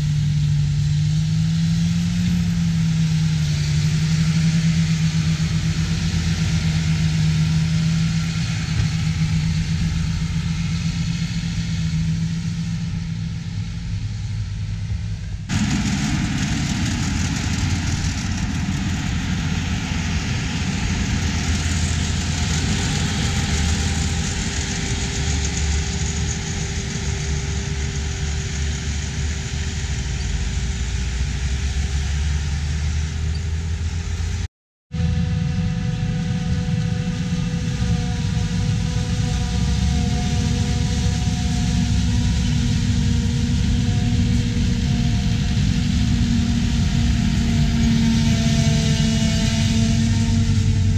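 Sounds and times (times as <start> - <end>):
distant tractor engines humming: 0.0 - 50.9
tractor engine under load: 0.1 - 34.4.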